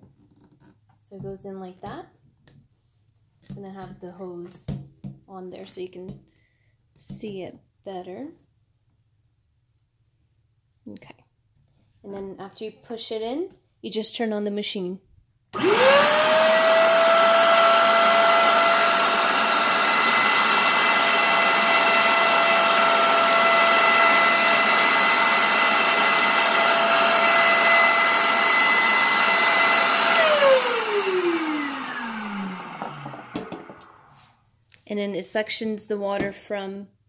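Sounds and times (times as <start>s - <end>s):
carpet cleaner motor whining: 15.6s - 34.1s.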